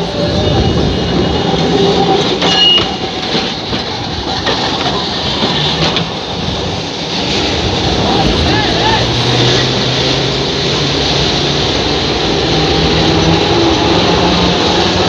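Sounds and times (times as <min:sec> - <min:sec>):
high wheel squeal: 0:00.0 - 0:03.6
trams rumbling on rails: 0:00.0 - 0:15.0.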